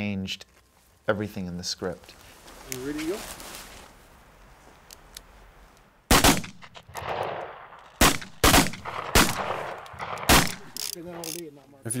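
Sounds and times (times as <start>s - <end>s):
pistol shots with echo: 6.1s - 10.8s.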